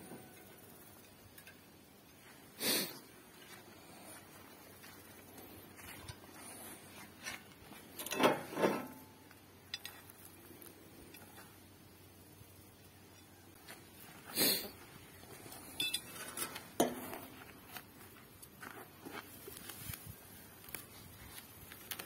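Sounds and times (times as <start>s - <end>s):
metal tines clinking: 15.5s - 17.0s.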